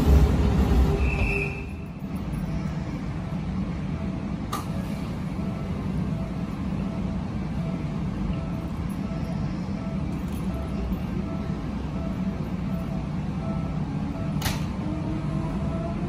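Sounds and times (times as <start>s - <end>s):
electric train humming: 0.0s - 16.0s
electric train rumble: 0.0s - 16.0s.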